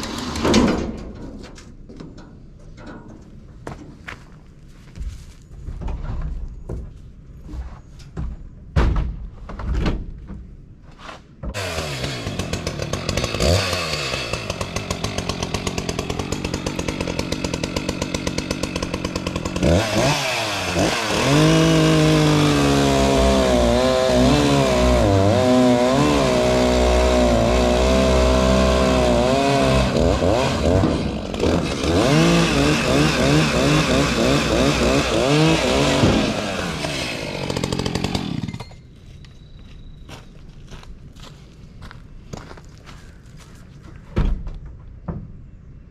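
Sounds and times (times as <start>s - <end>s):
chainsaw cutting a log: 0.0s - 0.5s, 11.5s - 38.8s.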